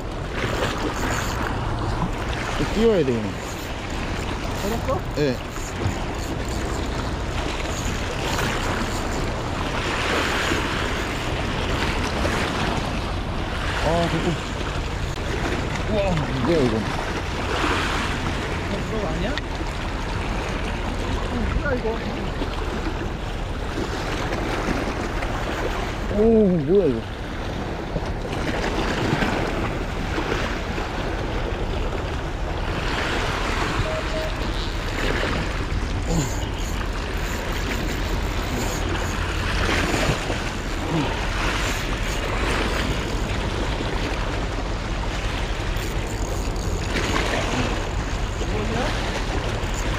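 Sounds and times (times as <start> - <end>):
waves washing over rocks: 0.0 - 49.9
fishing reel drag paying out line: 0.3 - 12.8, 32.7 - 49.9.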